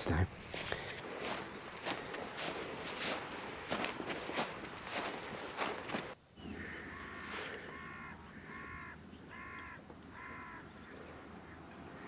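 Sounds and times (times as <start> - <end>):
crow cawing: 4.9 - 12.0
small bird high-pitched calls: 6.1 - 12.0.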